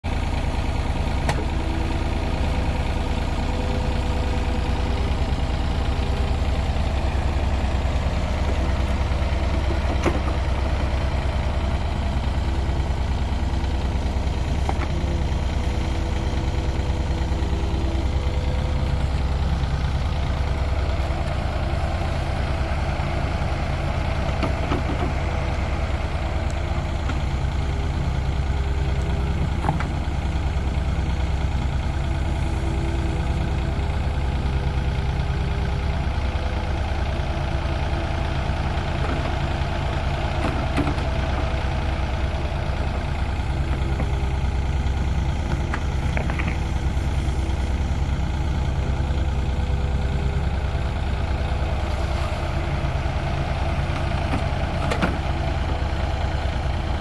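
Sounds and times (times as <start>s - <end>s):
diesel engines running: 0.0s - 57.0s.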